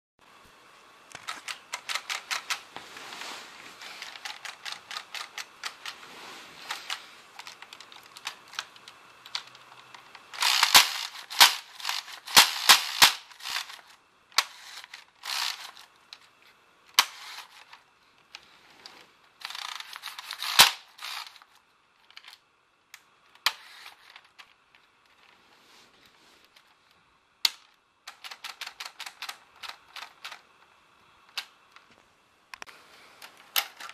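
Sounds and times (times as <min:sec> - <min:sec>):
motors whirring through plastic gears: 0:03.8 - 0:15.9, 0:16.9 - 0:22.4
rapid gear clicking: 0:10.3 - 0:13.8.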